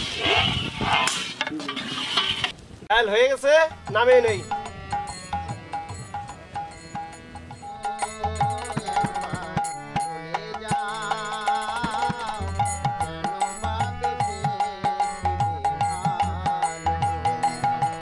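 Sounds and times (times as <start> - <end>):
hand drum beat: 3.7 - 18.0
wavering melody: 3.7 - 18.0.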